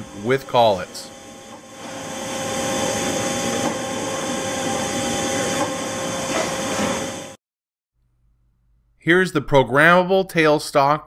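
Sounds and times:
lathe mechanical whir and hum: 0.0s - 7.4s.

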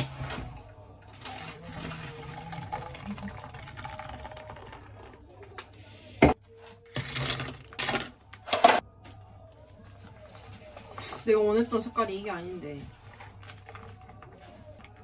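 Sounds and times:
soda pouring and fizzing: 1.6s - 5.2s.

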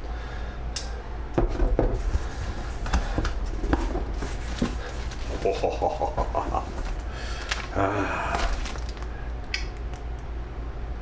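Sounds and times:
steady low hum: 0.0s - 11.0s
packaging rustling: 2.3s - 9.5s.

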